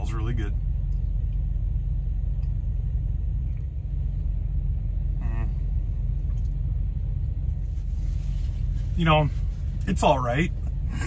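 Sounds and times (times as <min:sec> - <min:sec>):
truck engine idling: 0:00.0 - 0:11.0
man humming: 0:05.1 - 0:05.7.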